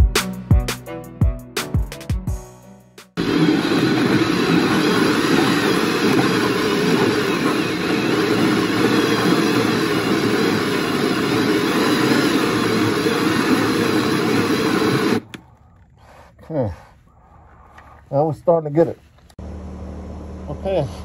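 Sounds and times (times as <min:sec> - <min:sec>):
power drill hole saw grinding: 0:03.2 - 0:15.4.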